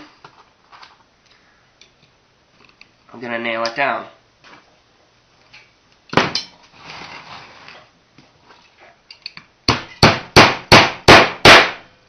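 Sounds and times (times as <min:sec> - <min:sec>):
rustling and scraping: 0:00.0 - 0:01.2, 0:04.4 - 0:04.8, 0:06.3 - 0:09.3
sharp knock on wood: 0:09.7 - 0:11.7.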